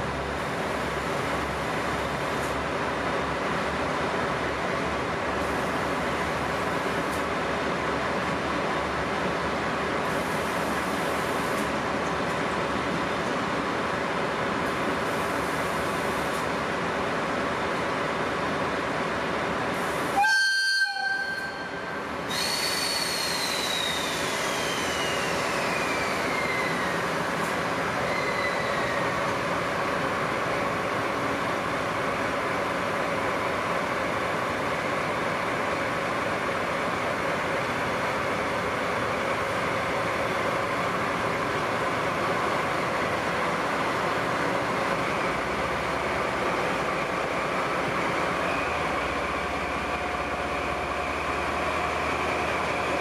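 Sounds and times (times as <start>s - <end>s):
diesel locomotive running: 0.0s - 53.0s.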